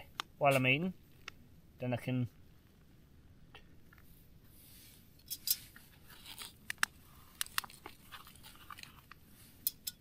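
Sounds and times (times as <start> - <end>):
packaging crinkling and tearing: 6.1 - 9.2.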